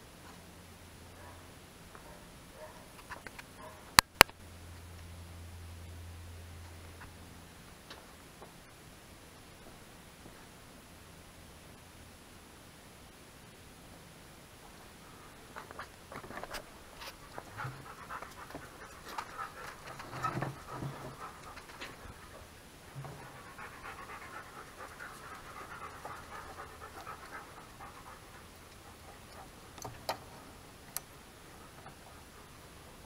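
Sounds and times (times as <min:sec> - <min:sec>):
dog panting: 0:17.1 - 0:29.7.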